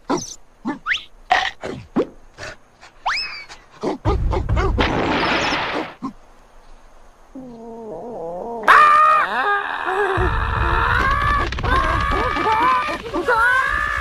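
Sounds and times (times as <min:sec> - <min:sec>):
cartoon squeaks and chirps: 0:00.1 - 0:01.1, 0:03.0 - 0:03.6
rising whistles: 0:03.0 - 0:03.6.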